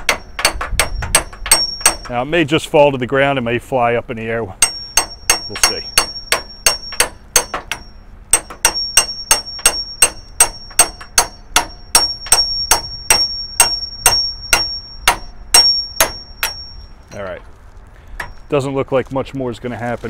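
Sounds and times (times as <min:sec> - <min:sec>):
hammer striking steel: 0:00.0 - 0:02.2, 0:04.6 - 0:16.9.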